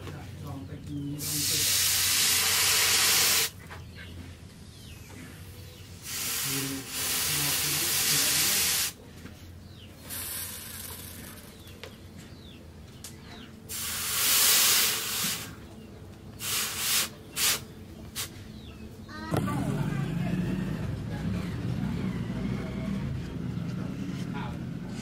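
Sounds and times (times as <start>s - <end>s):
hot blade hissing in water: 1.2s - 3.5s, 6.0s - 9.0s, 13.7s - 15.5s, 16.4s - 17.6s.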